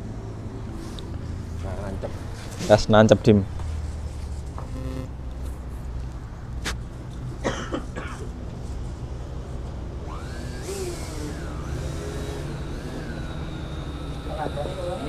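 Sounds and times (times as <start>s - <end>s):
person coughing: 7.4s - 8.3s.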